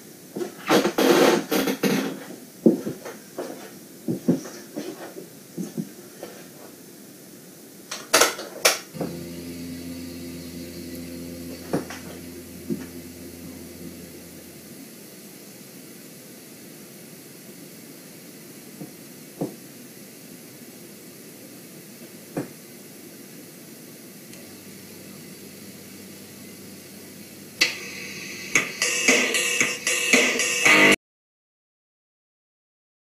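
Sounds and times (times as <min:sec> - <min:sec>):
steady mechanical hum: 0:09.0 - 0:15.0, 0:24.3 - 0:29.9
faint steady hiss: 0:09.0 - 0:15.1, 0:24.3 - 0:30.5.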